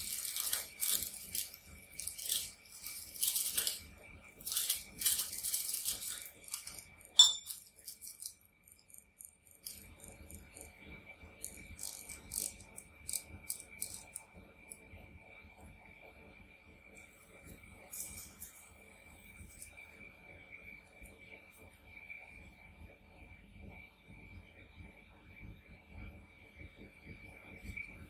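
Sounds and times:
crinkling handling noise: 0.0s - 8.4s
faint steady high tone: 7.2s - 7.6s.

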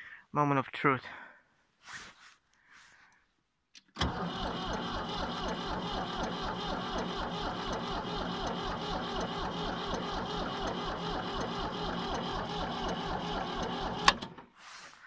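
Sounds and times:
tractor engine starter cranking: 3.8s - 14.6s.

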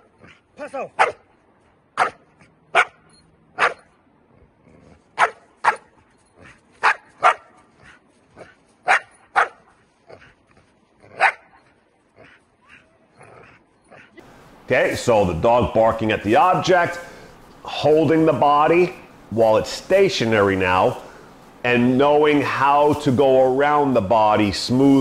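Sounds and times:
dog barking: 1.0s - 1.3s, 2.0s - 3.0s, 3.6s - 3.8s, 5.2s - 5.9s, 6.8s - 7.6s, 8.9s - 9.6s, 11.2s - 11.5s.

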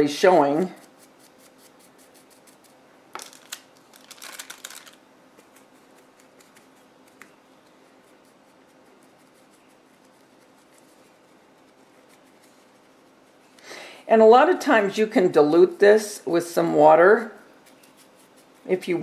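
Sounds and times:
paintbrush bristles scratching: 0.0s - 2.8s, 5.4s - 13.6s, 17.5s - 19.0s
light brushing: 17.5s - 19.0s.

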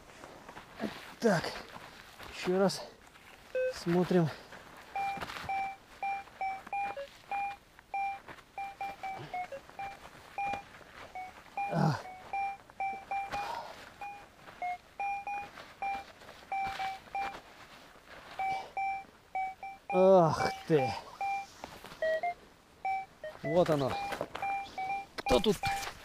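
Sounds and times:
metal detector beeps: 3.5s - 4.2s, 5.0s - 17.4s, 18.4s - 26.0s.

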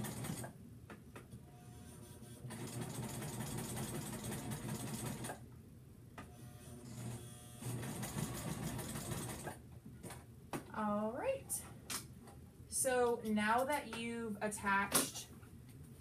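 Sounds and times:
sewing machine stitching: 0.0s - 0.5s, 2.5s - 5.4s, 6.9s - 9.6s.

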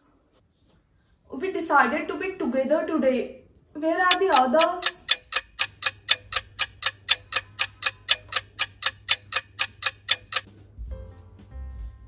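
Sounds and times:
clock ticking: 4.1s - 10.5s.

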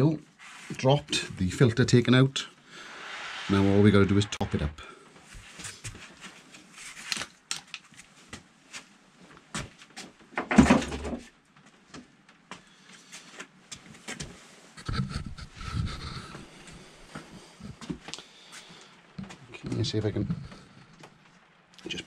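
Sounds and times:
rustling and shuffling: 3.1s - 10.3s, 11.5s - 15.4s.

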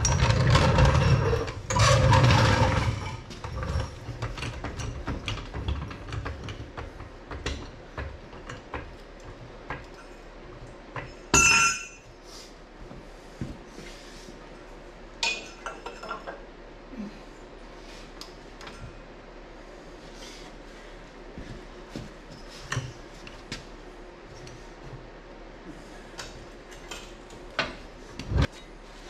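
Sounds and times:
steel parts and tools clinking: 11.2s - 12.0s
loud ringing metallic clang: 11.3s - 12.0s.

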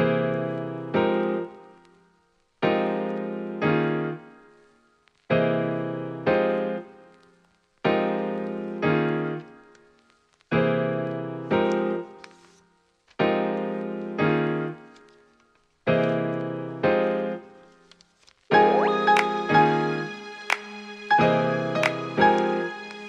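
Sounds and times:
soft keyboard chords: 0.0s - 1.8s, 2.6s - 4.5s, 7.9s - 9.8s, 10.5s - 12.5s, 13.2s - 15.0s, 15.9s - 17.7s, 18.5s - 23.0s
background music arrangement: 0.0s - 7.3s, 7.9s - 23.0s.

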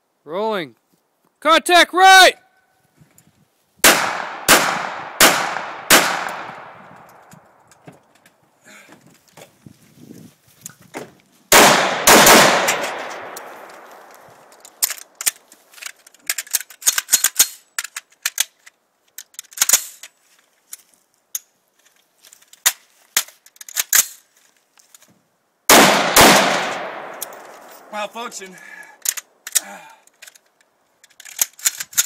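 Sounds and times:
rifle shots: 3.8s - 6.8s, 11.5s - 14.1s, 25.7s - 27.9s
clicks and rattles of handling gear: 6.9s - 11.4s, 12.7s - 25.2s, 27.1s - 32.0s.

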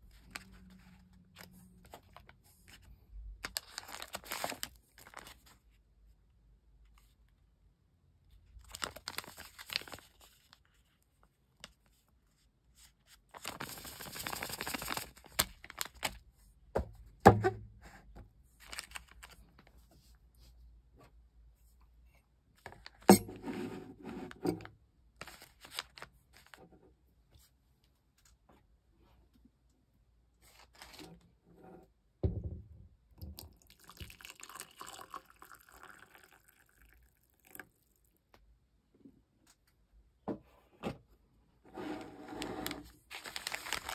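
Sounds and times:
paper packets rustling and crinkling: 0.1s - 5.6s, 8.6s - 10.9s, 12.8s - 16.3s, 18.6s - 19.9s, 25.2s - 26.6s, 42.6s - 43.9s.

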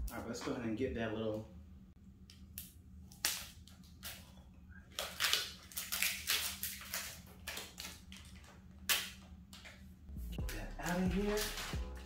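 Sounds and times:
plastic film crinkling: 4.9s - 9.2s, 10.5s - 11.8s.

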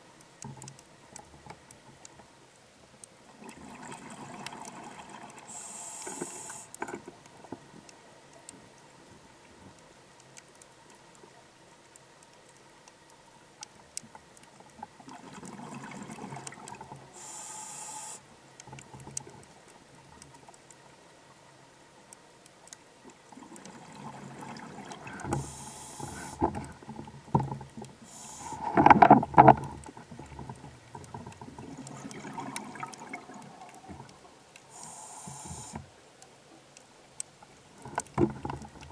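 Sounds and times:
regulator hissing inhalations: 5.5s - 6.8s, 17.2s - 18.2s, 25.3s - 26.4s, 28.0s - 28.8s, 34.7s - 35.8s
gurgling exhaled bubbles: 31.6s - 33.8s.

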